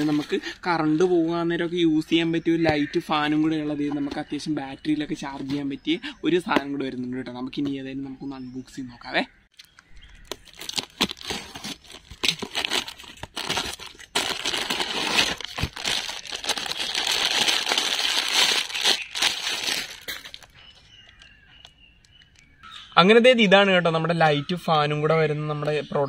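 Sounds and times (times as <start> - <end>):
plastic bag crinkling: 10.1 - 21.4.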